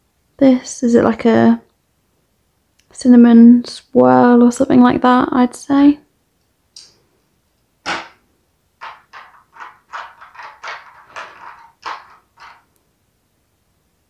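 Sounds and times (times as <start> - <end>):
plastic crinkles and taps: 8.8 - 12.6.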